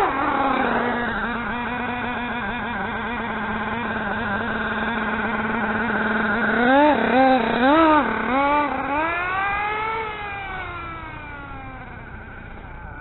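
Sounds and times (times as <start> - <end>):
toy car motor whining: 0.0 - 13.0.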